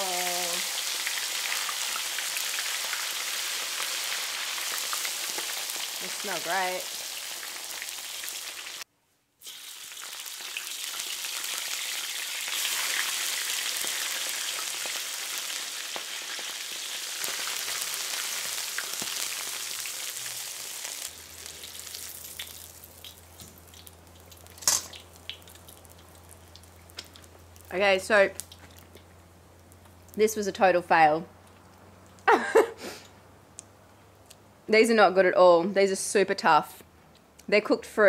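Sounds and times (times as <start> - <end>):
hot fat sizzling: 0.0 - 30.4
crackles of frying: 0.0 - 30.7.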